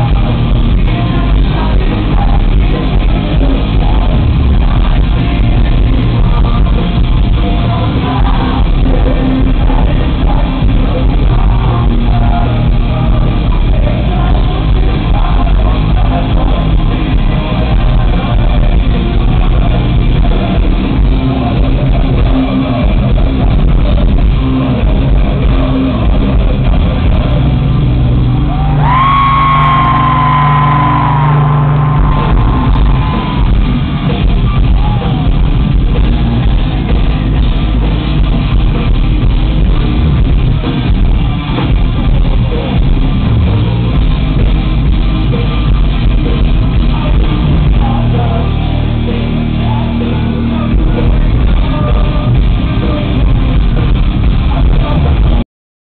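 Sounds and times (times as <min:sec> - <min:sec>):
electric guitars: 0:00.0 - 0:55.4
bass guitar: 0:00.0 - 0:55.5
drums: 0:00.0 - 0:55.5
person shouting and singing: 0:28.5 - 0:35.6.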